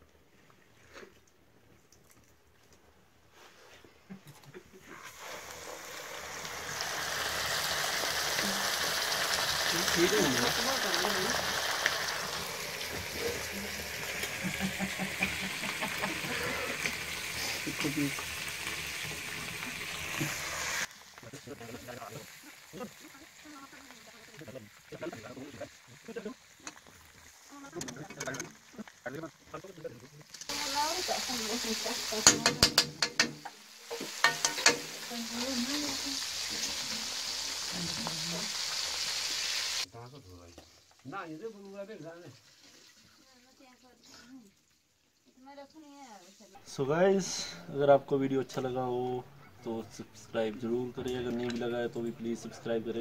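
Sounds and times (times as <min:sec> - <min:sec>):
fish frying in hot oil: 0:05.0 - 0:46.5
metal spoon scraping a pan: 0:32.1 - 0:35.0.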